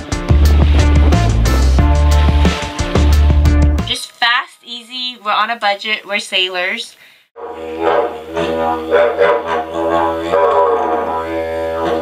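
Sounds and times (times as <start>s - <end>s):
didgeridoo drone: 0.0s - 2.5s, 7.4s - 12.0s.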